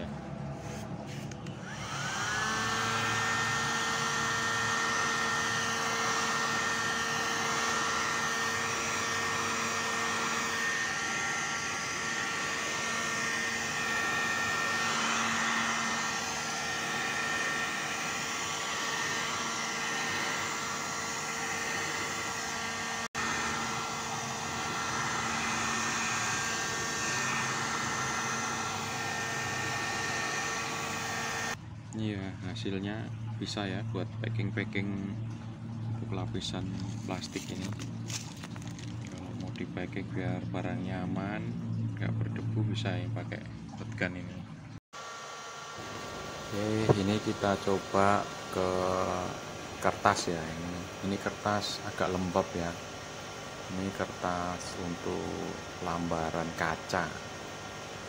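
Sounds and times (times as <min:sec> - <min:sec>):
hot air gun blowing with whine: 0:00.0 - 0:31.6, 0:45.0 - 0:58.0.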